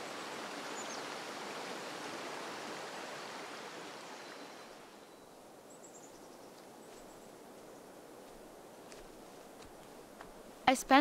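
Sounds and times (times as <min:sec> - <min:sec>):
stream water rushing: 0:00.0 - 0:05.5.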